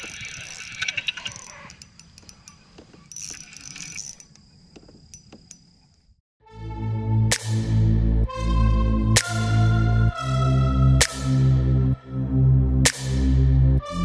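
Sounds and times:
fishing reel clicking and whirring: 0.0s - 4.3s.

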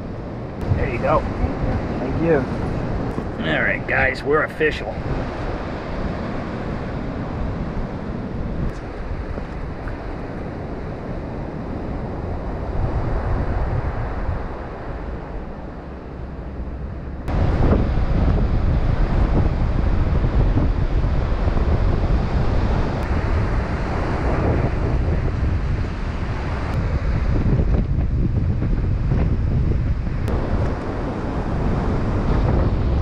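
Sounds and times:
ocean surf: 0.0s - 33.0s
wind buffeting microphone: 0.0s - 33.0s.

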